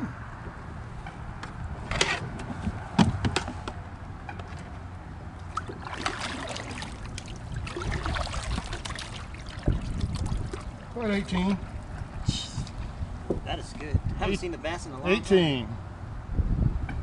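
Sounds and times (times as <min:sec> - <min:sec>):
water trickling and splashing: 0:04.4 - 0:13.0.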